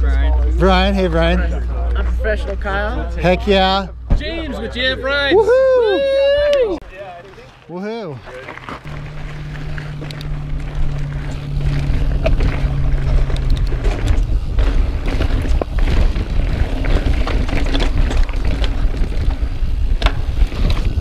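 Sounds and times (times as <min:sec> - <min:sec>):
bike tyres and frame rattling: 0:00.0 - 0:21.0
wind buffeting microphone: 0:09.0 - 0:21.0.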